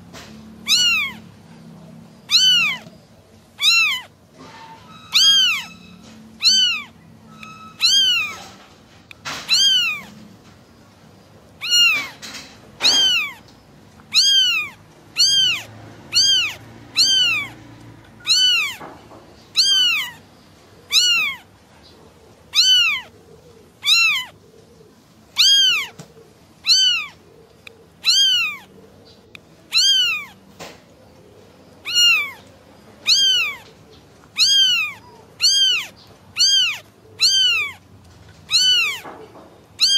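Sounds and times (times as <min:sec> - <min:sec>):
kitten meowing: 0:00.6 - 0:01.4, 0:02.2 - 0:04.2, 0:04.9 - 0:08.6, 0:09.3 - 0:10.3, 0:11.6 - 0:20.3, 0:20.9 - 0:21.5, 0:22.5 - 0:23.2, 0:23.8 - 0:24.4, 0:25.4 - 0:27.2, 0:28.0 - 0:28.7, 0:29.7 - 0:30.5, 0:31.8 - 0:37.9, 0:38.5 - 0:39.2.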